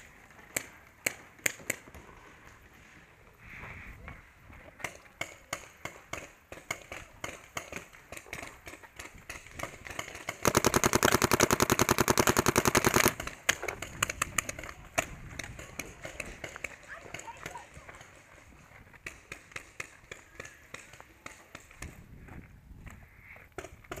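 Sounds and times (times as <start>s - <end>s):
paintball marker shots: 4.8s - 16.7s
rapid paintball burst: 4.8s - 22.0s.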